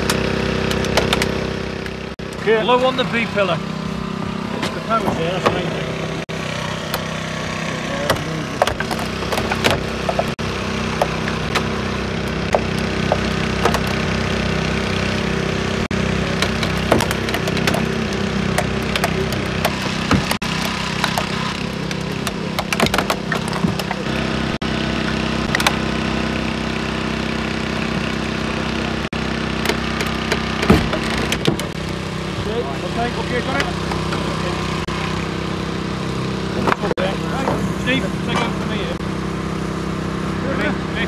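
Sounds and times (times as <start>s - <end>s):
generator engine running: 0.0s - 41.0s
metal cracking under cutter blades: 16.3s - 24.2s.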